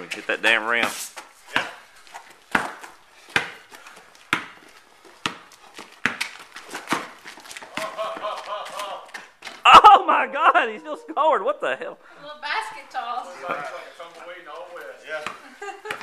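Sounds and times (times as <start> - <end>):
basketball bouncing on pavement: 0.8 - 9.6, 13.4 - 13.8, 15.2 - 16.0.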